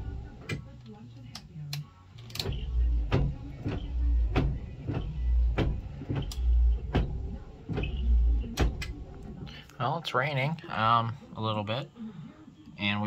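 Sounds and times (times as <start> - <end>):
windshield wipers sweeping: 2.4 - 9.5.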